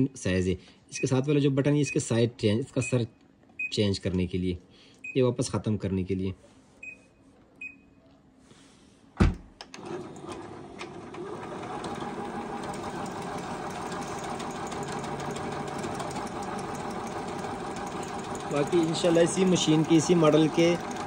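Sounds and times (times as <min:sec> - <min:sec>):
thump: 0:09.2 - 0:09.5
sewing machine running: 0:09.8 - 0:21.0.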